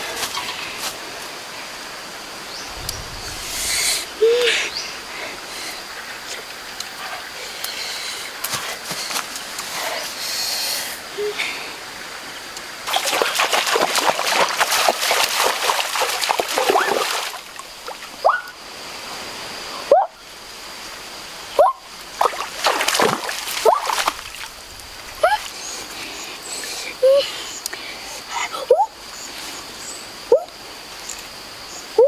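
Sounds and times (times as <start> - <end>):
water splashing and sloshing: 12.8 - 18.6, 21.9 - 26.9.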